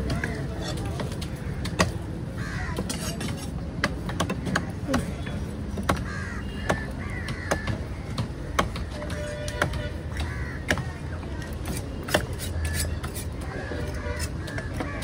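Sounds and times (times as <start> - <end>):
knives chopping on wooden blocks: 0.0 - 2.0, 2.8 - 15.0
background chatter: 0.0 - 9.7
crows cawing: 1.4 - 3.1, 5.9 - 8.9, 10.1 - 11.1, 12.4 - 15.0.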